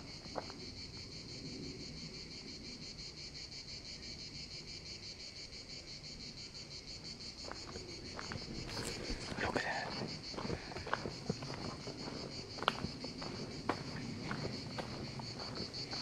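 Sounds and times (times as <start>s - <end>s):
insects chirping: 0.0s - 16.0s.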